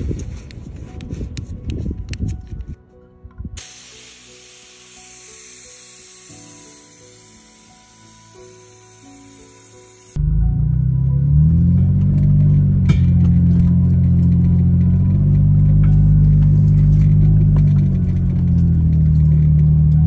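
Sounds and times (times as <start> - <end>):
car engine driving: 6.6 - 20.0.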